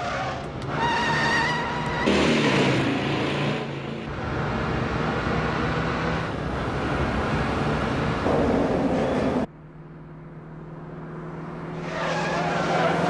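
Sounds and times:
car engine running hard: 0:02.1 - 0:13.0
steady low hum: 0:08.2 - 0:09.8.

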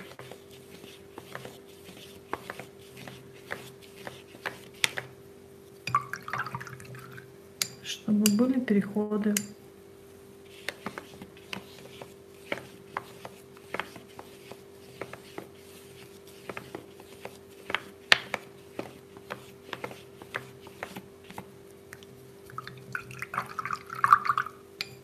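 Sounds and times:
brush swishing in water: 0:00.0 - 0:05.1, 0:10.4 - 0:24.4
paintbrush tapping and scratching: 0:00.0 - 0:05.2, 0:10.5 - 0:24.4.

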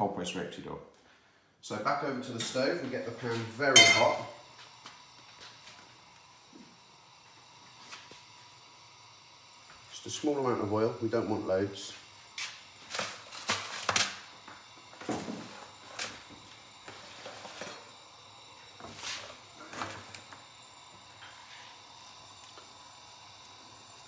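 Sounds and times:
faint steady hiss: 0:00.0 - 0:24.0
pans and bottle clinking: 0:03.7 - 0:04.4.

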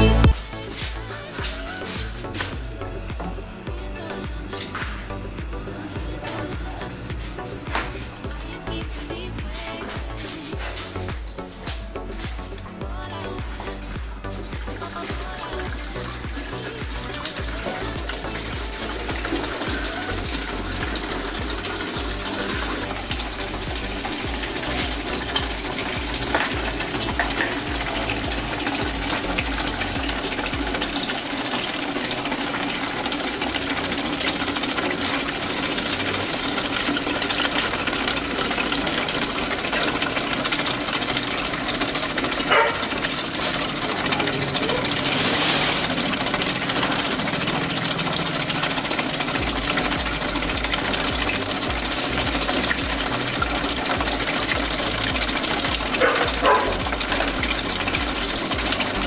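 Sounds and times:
water splashing: 0:00.0 - 0:59.0
motor whirring: 0:13.8 - 0:59.0.

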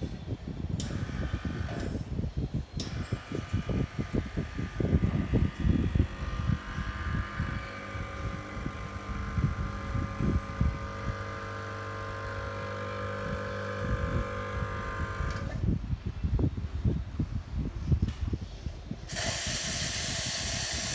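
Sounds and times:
espresso machine pump humming: 0:03.2 - 0:15.8, 0:19.1 - 0:20.9.

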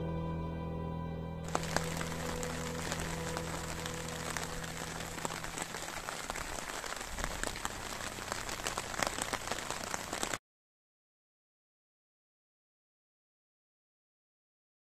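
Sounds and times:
rain falling on a lake: 0:01.5 - 0:10.4.

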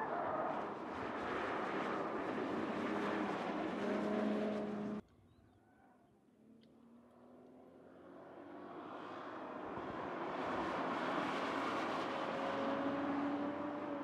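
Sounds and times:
car engine passing: 0:00.0 - 0:05.0.

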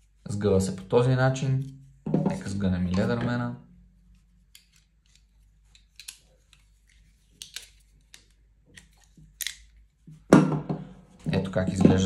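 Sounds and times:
multitool metal clicks and snaps: 0:07.4 - 0:09.8.

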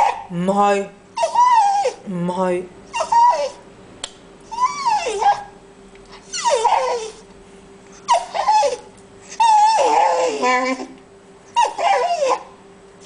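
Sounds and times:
dog whining: 0:00.0 - 0:00.3, 0:01.1 - 0:02.1, 0:02.9 - 0:03.6, 0:04.4 - 0:07.3, 0:07.9 - 0:12.6.

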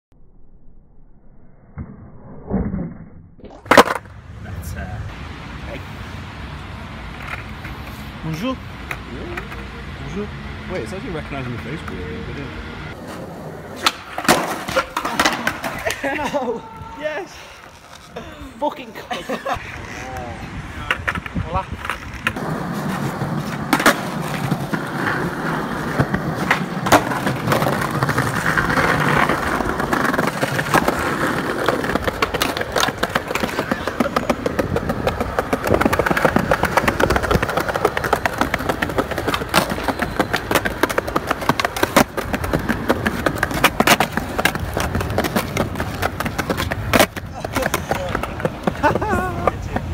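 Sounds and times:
skateboard wheels rumbling: 0:03.5 - 0:04.2, 0:06.6 - 0:10.2, 0:12.9 - 0:49.9
skateboard clacks: 0:03.6 - 0:04.1, 0:13.7 - 0:16.3, 0:19.6 - 0:49.9.

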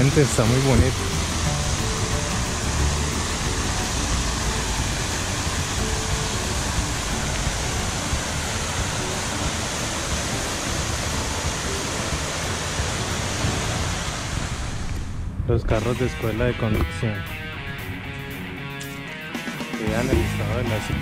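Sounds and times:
fountain water splashing: 0:00.0 - 0:15.0.

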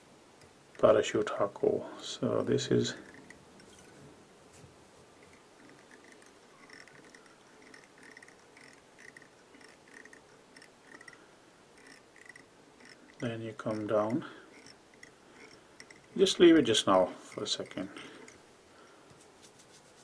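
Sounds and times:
soft ticks of thread wrapping: 0:05.2 - 0:11.2, 0:11.8 - 0:16.2.

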